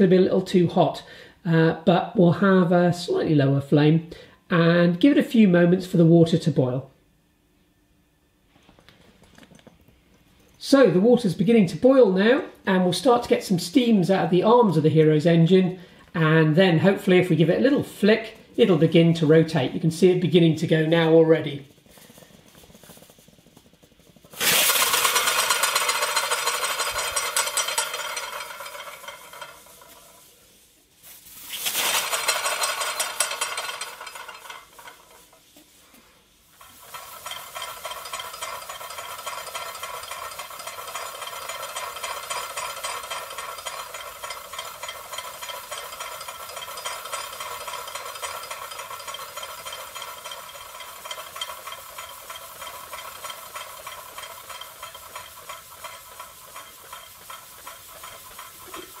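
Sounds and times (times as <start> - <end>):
steam sputtering and hissing: 21.6 - 28.2, 36.4 - 59.0.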